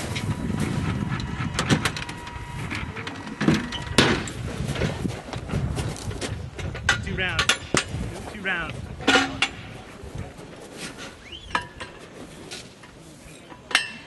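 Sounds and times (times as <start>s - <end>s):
bursts of voices: 8.1s - 8.8s.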